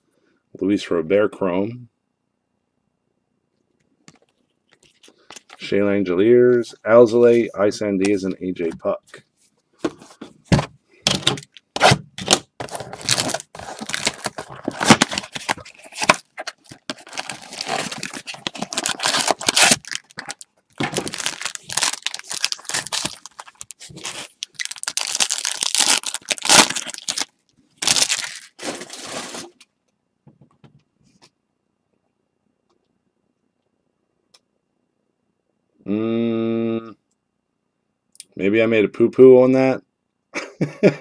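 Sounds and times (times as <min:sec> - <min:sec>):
foil packs tearing and crinkling: 0:11.2 - 0:29.6.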